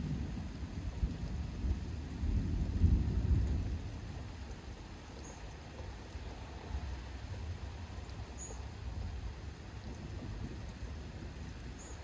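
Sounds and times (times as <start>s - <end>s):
distant thunder rumbling: 0.0s - 12.0s
bird chirping: 5.1s - 5.6s, 8.0s - 8.7s, 11.8s - 12.0s.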